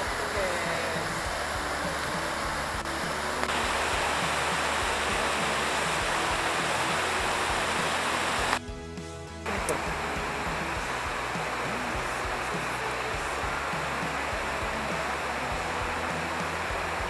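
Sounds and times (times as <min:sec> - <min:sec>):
stream rushing over rocks: 0:00.0 - 0:08.6, 0:09.5 - 0:17.0.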